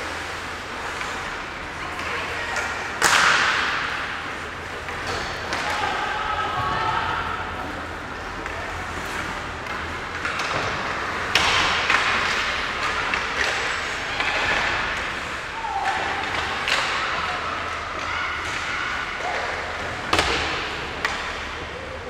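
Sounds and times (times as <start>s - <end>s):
hockey sticks and puck knocking: 2.0s - 6.0s, 8.2s - 21.6s.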